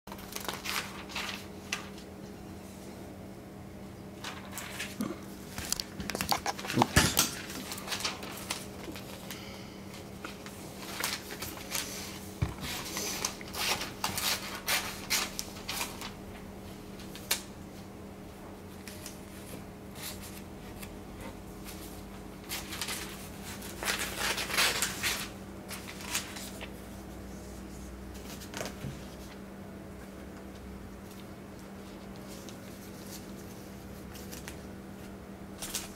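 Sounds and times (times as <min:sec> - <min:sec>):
steady low hum: 0:00.1 - 0:35.9.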